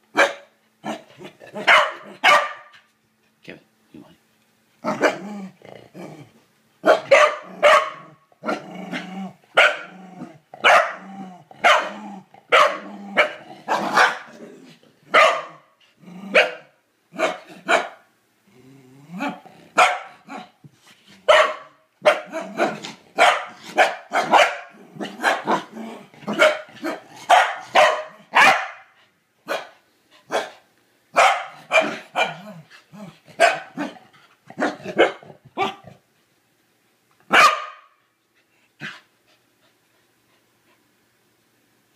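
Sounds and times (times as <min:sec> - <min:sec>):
dog barking: 0:00.1 - 0:00.5, 0:01.6 - 0:02.7, 0:06.8 - 0:08.1, 0:09.6 - 0:09.9, 0:10.6 - 0:11.0, 0:11.6 - 0:14.3, 0:15.1 - 0:15.7, 0:16.4 - 0:18.1, 0:19.8 - 0:20.5, 0:21.3 - 0:25.7, 0:26.3 - 0:28.9, 0:29.5 - 0:32.4, 0:33.4 - 0:34.0, 0:34.6 - 0:35.8, 0:37.3 - 0:38.0
dog growling: 0:04.8 - 0:06.4, 0:07.4 - 0:15.0, 0:15.9 - 0:16.4, 0:18.5 - 0:20.5, 0:24.7 - 0:27.3.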